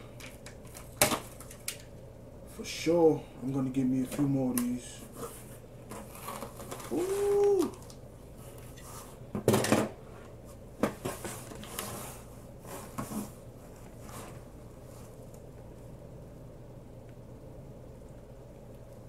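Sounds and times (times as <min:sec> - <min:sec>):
scrapes and rustles: 0:05.0 - 0:07.4, 0:08.3 - 0:09.3, 0:10.1 - 0:15.4.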